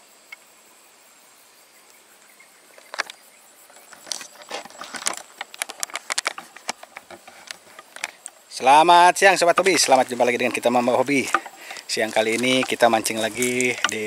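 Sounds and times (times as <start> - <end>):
faint steady hiss: 0.0 - 14.0
sharp clicks and crackles: 3.8 - 8.4, 9.6 - 14.0.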